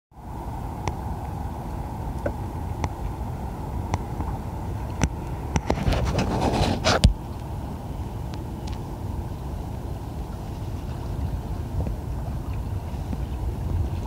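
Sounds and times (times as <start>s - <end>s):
wind rumbling on microphone: 0.2s - 14.0s.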